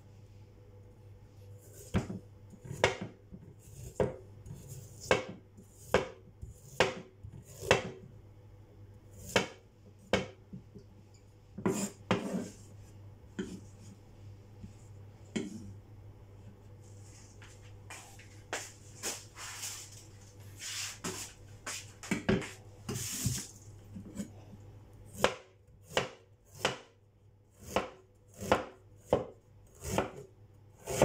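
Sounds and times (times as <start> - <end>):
knife chopping on wooden board: 1.8 - 8.0, 9.2 - 10.4, 11.6 - 12.5, 25.2 - 26.9, 27.6 - 30.2.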